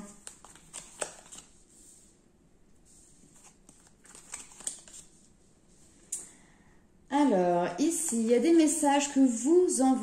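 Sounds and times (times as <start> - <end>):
cards clicking and slapping: 0.2 - 1.5, 3.4 - 5.1.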